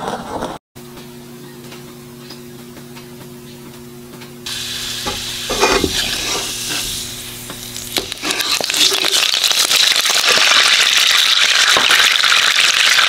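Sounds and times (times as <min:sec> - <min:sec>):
low electric hum: 0:00.8 - 0:10.5
oil sizzling in a pan: 0:04.5 - 0:13.0
spoon scraping a pan: 0:05.0 - 0:07.1, 0:08.0 - 0:09.2.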